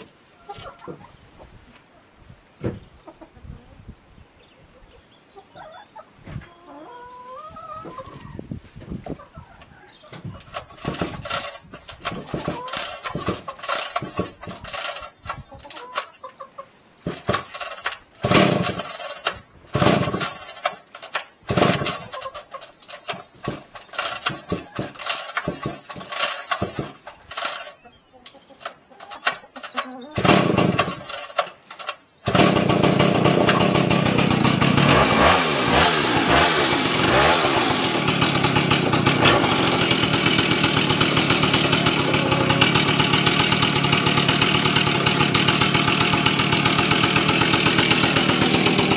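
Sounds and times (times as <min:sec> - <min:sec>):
chainsaw recoil starter pulls: 0:10.4 - 0:16.2, 0:17.0 - 0:27.8, 0:28.6 - 0:48.9.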